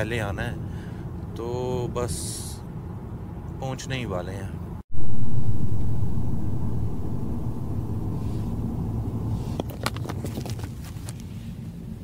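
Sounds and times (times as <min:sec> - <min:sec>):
car cabin rumble: 0:04.9 - 0:12.0.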